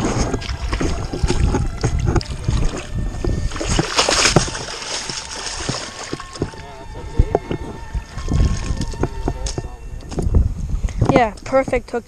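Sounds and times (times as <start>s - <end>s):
fish thrashing and splashing: 0.0s - 9.6s
low rumble and handling knocks: 0.0s - 11.9s.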